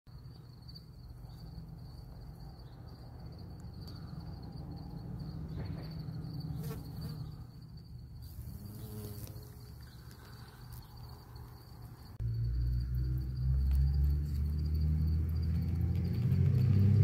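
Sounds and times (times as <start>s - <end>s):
bumblebee buzzing: 6.5s - 7.5s, 8.2s - 12.2s.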